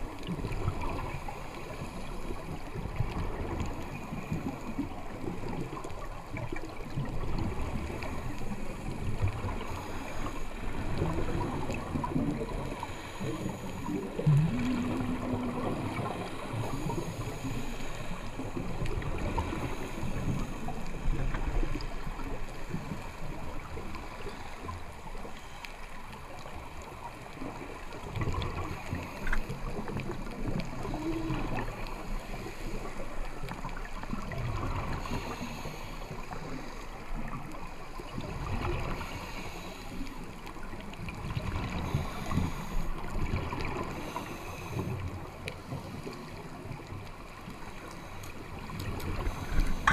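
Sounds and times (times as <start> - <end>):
regulator exhaust bubbles: 49.1 - 49.9.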